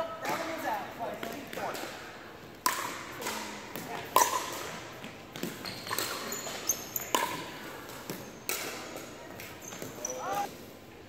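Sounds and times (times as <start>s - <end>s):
paddles hitting plastic ball: 1.2s - 10.0s
sneaker squeaks on hardwood floor: 5.4s - 7.4s, 9.5s - 10.5s.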